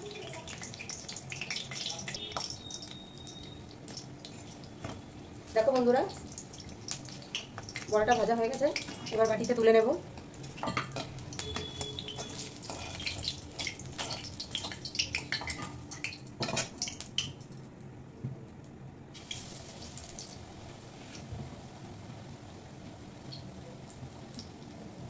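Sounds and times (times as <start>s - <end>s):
hot oil crackling and sizzling: 0.0s - 17.6s, 19.1s - 25.0s
spatula scraping and clinking pan: 10.6s - 14.8s.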